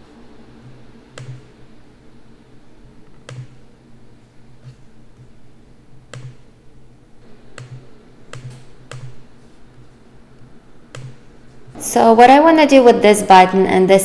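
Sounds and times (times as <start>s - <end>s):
faint low hum: 0.0s - 14.0s
computer mouse clicks: 0.6s - 1.5s, 3.1s - 3.6s, 6.1s - 6.5s, 7.5s - 9.3s, 10.9s - 11.3s.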